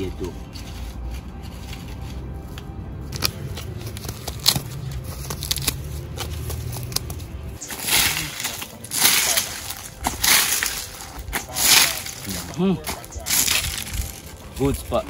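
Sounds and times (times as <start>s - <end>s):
footsteps on gravel and leaves: 0.0s - 15.0s
feathers rustling: 7.6s - 15.0s.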